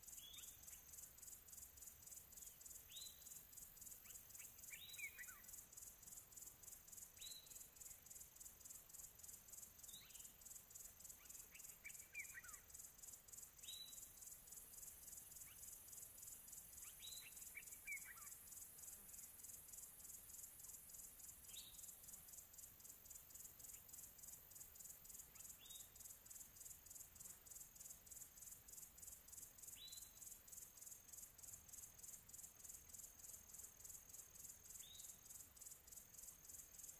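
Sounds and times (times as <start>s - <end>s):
insects chirping: 0.0s - 36.9s.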